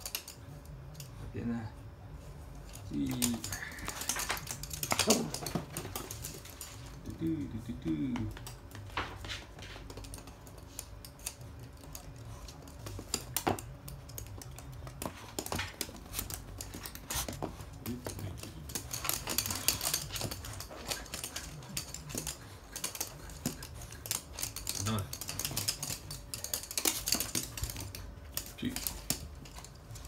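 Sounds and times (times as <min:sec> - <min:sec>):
dog claws clicking on floor: 0:00.0 - 0:01.2, 0:02.5 - 0:30.0.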